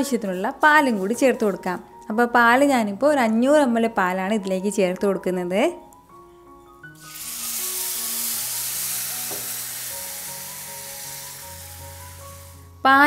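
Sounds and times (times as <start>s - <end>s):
soft background music: 0.0s - 13.0s
milk sizzling in hot pan: 7.0s - 12.8s.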